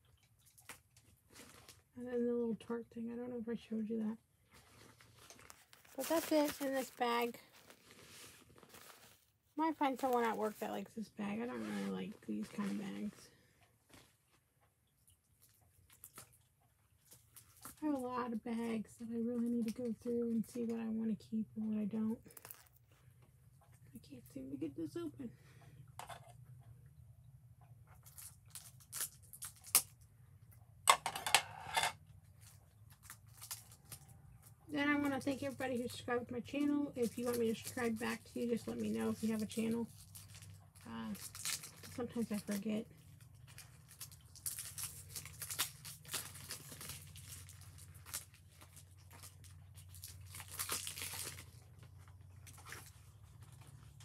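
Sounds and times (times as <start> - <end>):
packaging clicks and rustling: 4.7 - 9.2, 32.4 - 34.1, 37.0 - 54.0.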